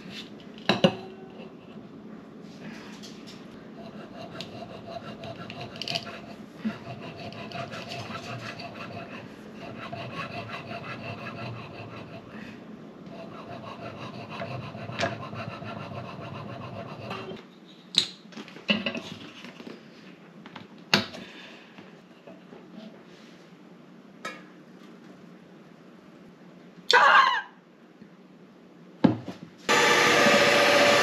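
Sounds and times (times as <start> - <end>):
wire sawing through sponge cake: 3.9 - 12.3, 13.2 - 17.4.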